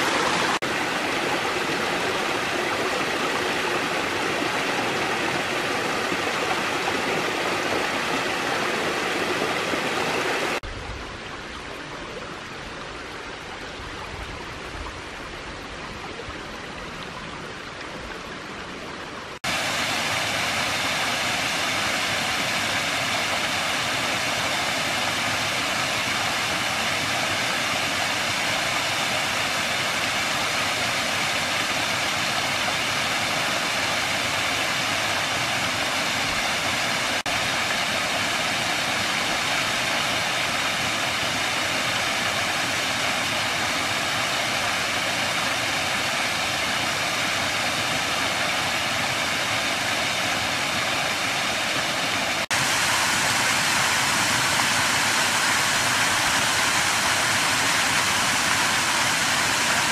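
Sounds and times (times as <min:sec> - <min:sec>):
waterfall rushing and splashing: 0:00.0 - 0:59.9.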